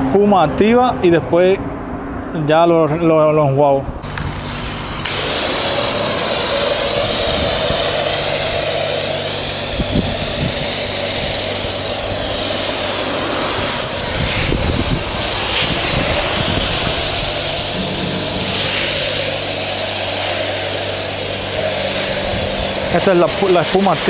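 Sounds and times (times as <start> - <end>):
foam lance spraying hiss: 4.0 - 24.0
low hum: 4.0 - 24.0.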